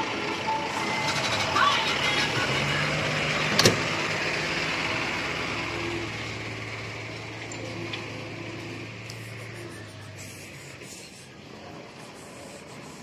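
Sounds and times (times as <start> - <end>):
truck engine idling: 0.0 - 13.0.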